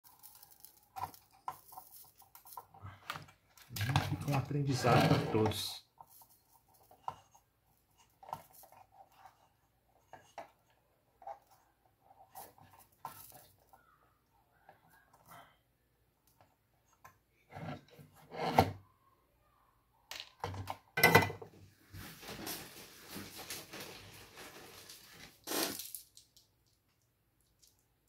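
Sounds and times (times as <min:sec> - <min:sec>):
scraping on workbench: 0:04.8 - 0:05.6, 0:17.5 - 0:18.8.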